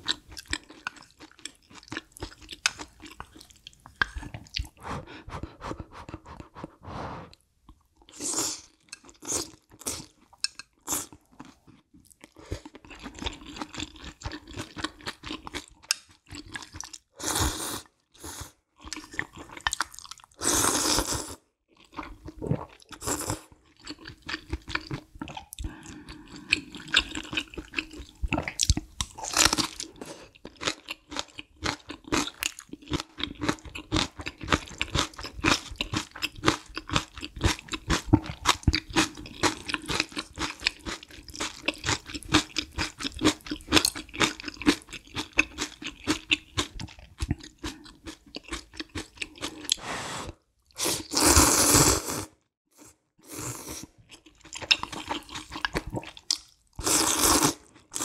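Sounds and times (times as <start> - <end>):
chewing food: 0.0 - 6.8, 7.7 - 17.1, 18.8 - 20.4, 21.7 - 49.8, 53.8 - 58.0
loud slurp of noodles: 6.0 - 7.4, 49.7 - 52.4, 56.8 - 58.0.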